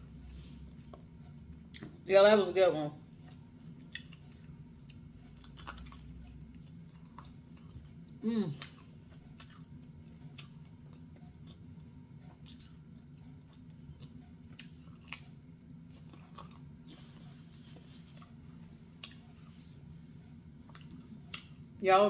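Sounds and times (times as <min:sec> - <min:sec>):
low room hum: 0:00.0 - 0:22.0
person chewing pizza crust: 0:03.2 - 0:19.9, 0:20.6 - 0:21.6.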